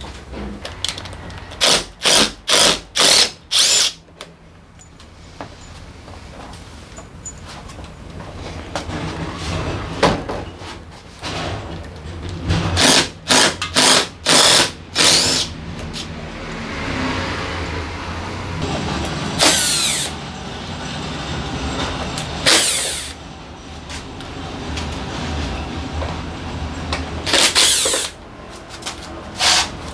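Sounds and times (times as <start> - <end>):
tool hissing bursts: 1.6 - 4.0, 12.8 - 15.5, 19.4 - 20.2, 22.4 - 23.2, 27.3 - 28.2.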